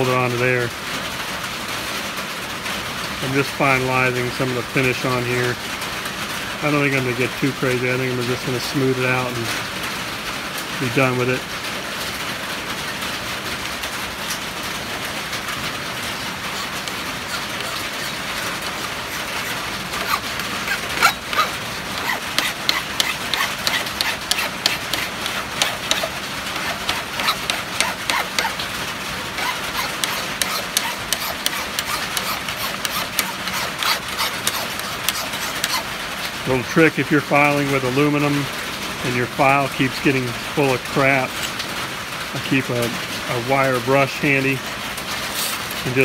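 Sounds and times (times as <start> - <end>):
rain on shed roof: 0.0 - 23.6, 24.5 - 31.1, 34.6 - 46.0
hand file rasping on metal: 16.3 - 35.9.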